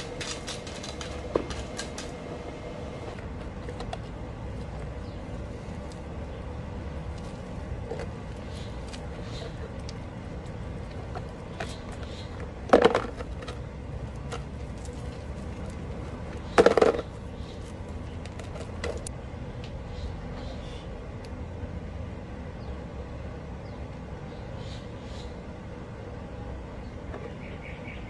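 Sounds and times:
pebbles and gravel clattering: 0:00.0 - 0:02.2
low background rumble: 0:00.0 - 0:28.0.

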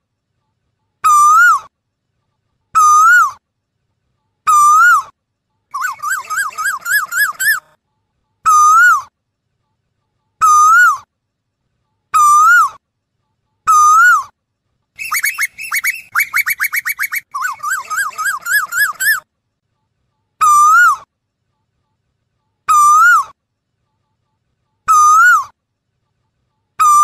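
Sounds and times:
koel calling: 0:05.8 - 0:07.7, 0:15.0 - 0:19.2.

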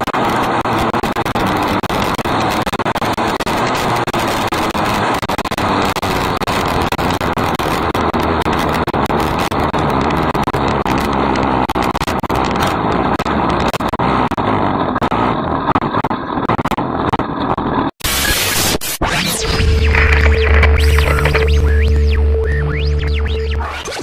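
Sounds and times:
race car engine running: 0:00.0 - 0:18.4, 0:19.4 - 0:24.0
rapid crackling: 0:00.0 - 0:24.0
loud rush of noise: 0:17.9 - 0:24.0.

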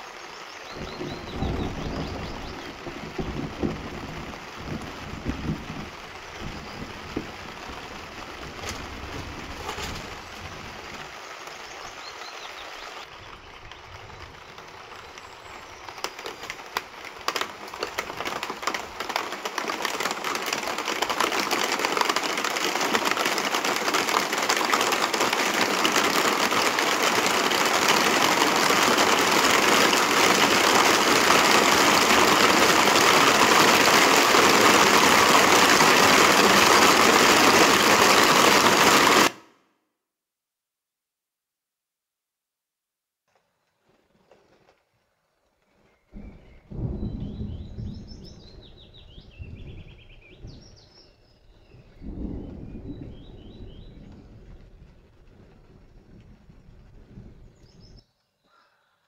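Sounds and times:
heavy rain downpour: 0:00.0 - 0:39.4, 0:46.2 - 0:58.0.

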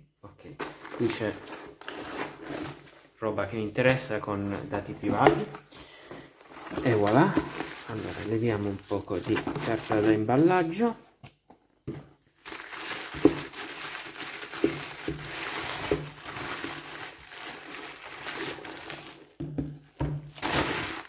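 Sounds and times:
packing paper crinkling: 0:06.4 - 0:10.3, 0:12.4 - 0:19.4, 0:20.4 - 0:21.0.

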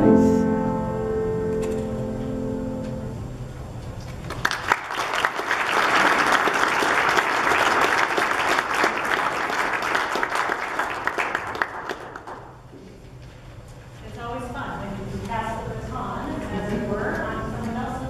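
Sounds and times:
music: 0:00.0 - 0:03.5
audience applauding: 0:04.2 - 0:12.6.

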